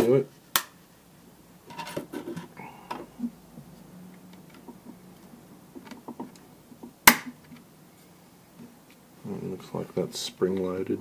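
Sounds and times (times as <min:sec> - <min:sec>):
sharp plastic snap: 0:00.5 - 0:00.8, 0:07.0 - 0:07.6
clicks and taps on plastic: 0:04.5 - 0:07.6.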